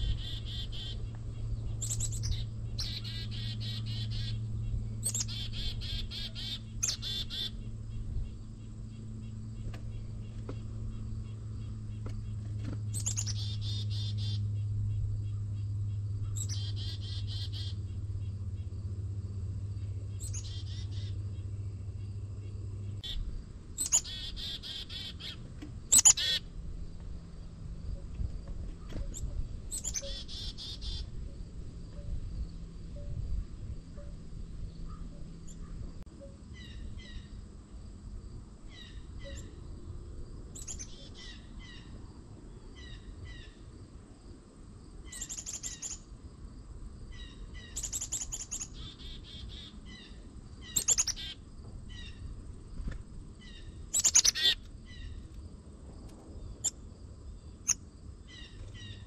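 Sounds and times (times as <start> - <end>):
sharp falling bird calls: 0.0 - 1.1, 1.8 - 4.4, 5.0 - 7.7, 8.6 - 14.6, 15.2 - 18.7, 20.1 - 21.5, 23.8 - 26.5, 28.9 - 31.1, 53.4 - 55.2
songbirds chirping: 0.0 - 59.0.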